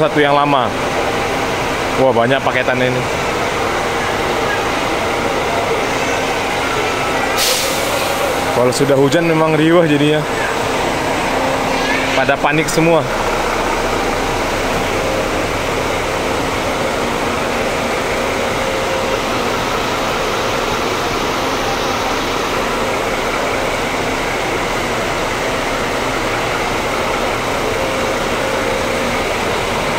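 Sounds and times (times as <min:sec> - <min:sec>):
diesel coaches idling: 0:00.0 - 0:29.9
heavy rain hiss: 0:07.3 - 0:09.7.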